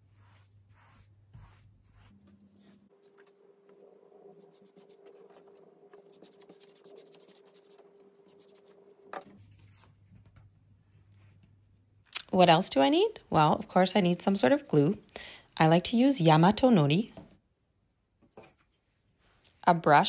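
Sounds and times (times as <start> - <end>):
brush strokes on paper: 0.0 - 10.1.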